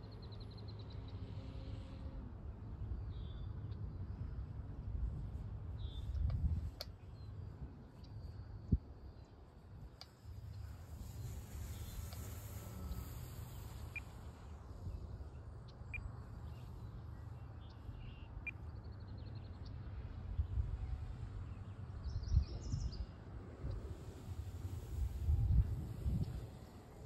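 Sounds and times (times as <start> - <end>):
wind buffeting microphone: 5.0 - 6.8, 20.2 - 27.0
bird chirps: 15.6 - 19.7.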